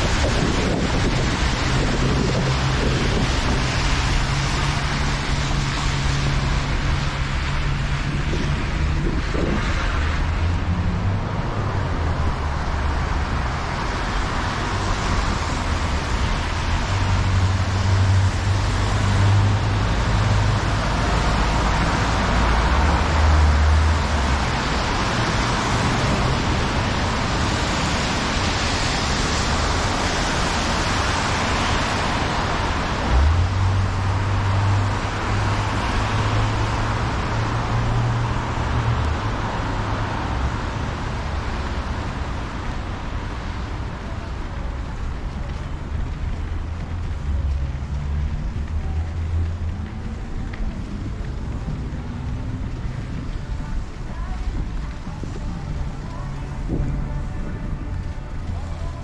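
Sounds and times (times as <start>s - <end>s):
wind buffeting microphone: 0.0s - 35.5s
road traffic rumble: 0.0s - 59.0s
tyres on wet slushy pavement: 0.0s - 59.0s.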